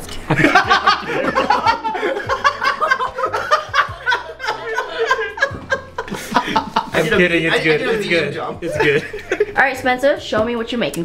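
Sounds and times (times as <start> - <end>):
people laughing: 0.2 - 9.6
people talking: 6.5 - 11.0.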